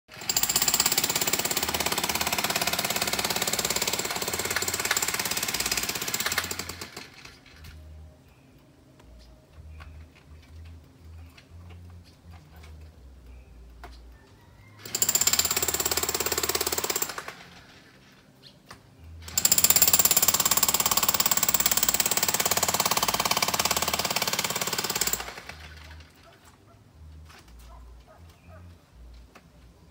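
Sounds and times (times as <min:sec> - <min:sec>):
jackhammer hammering: 0:00.1 - 0:07.3, 0:14.8 - 0:17.6, 0:19.2 - 0:26.2.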